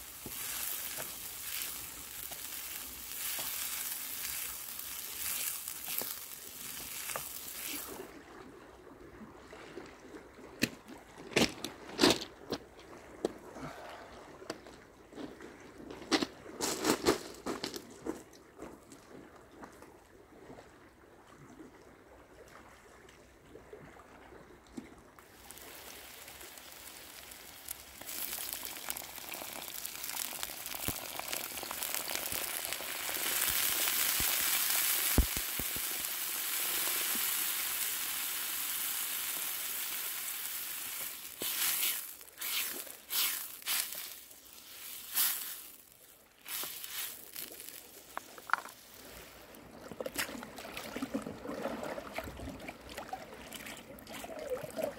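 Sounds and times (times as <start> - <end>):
sizzling in a hot pan: 0.0 - 8.0, 25.4 - 48.0.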